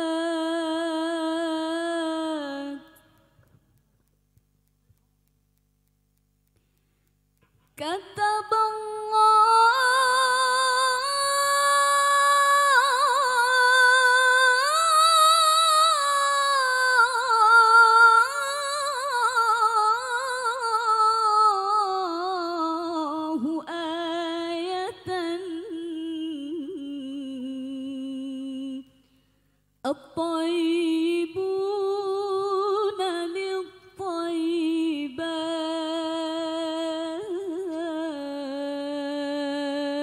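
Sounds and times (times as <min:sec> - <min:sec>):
woman singing unaccompanied: 0:00.0 - 0:03.4, 0:07.8 - 0:29.0, 0:29.8 - 0:40.0.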